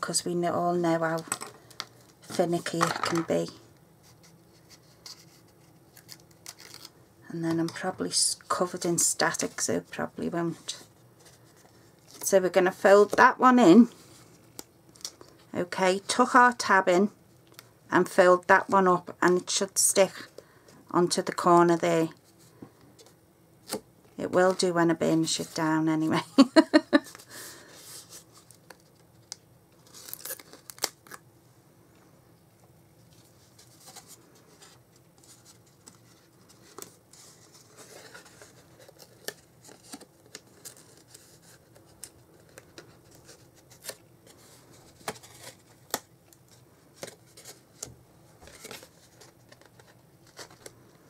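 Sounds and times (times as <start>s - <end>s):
paper rustling and scraping: 33.1s - 45.8s.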